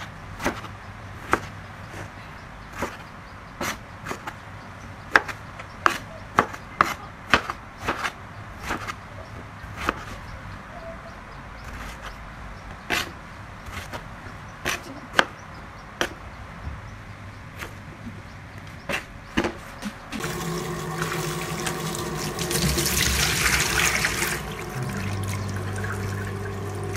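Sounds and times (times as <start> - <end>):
knife chopping on cutting board: 5.1 - 9.0, 14.6 - 15.3.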